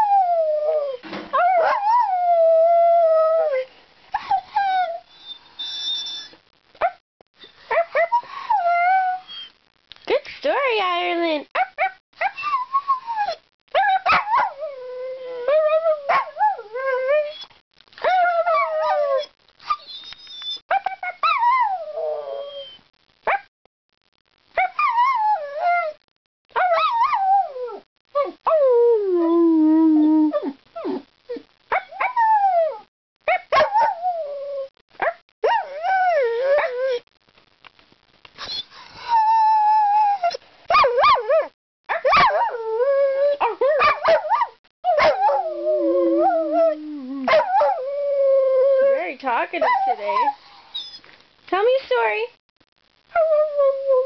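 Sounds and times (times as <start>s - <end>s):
dog howling: 18.1s - 20.1s, 39.0s - 49.0s.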